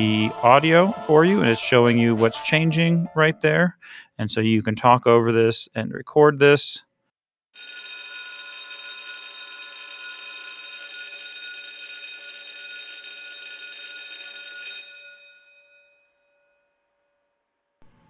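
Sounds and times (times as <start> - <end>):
alarm bell ringing: 7.6 - 16.7.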